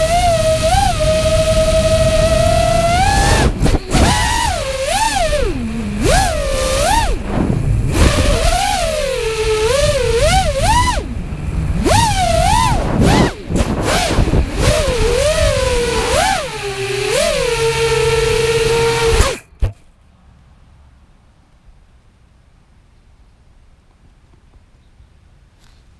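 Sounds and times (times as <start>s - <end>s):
rush of air: 0.0s - 16.6s
drone motors whining: 0.0s - 19.7s.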